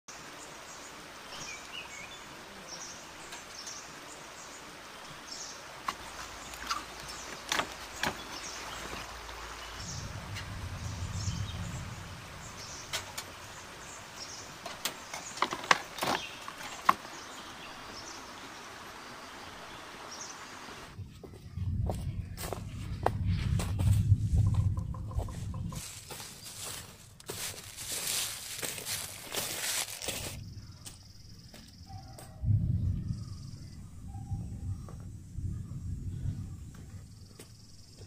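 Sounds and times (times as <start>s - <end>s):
low rumble: 9.1s - 13.9s, 20.9s - 26.8s, 32.4s - 37.4s.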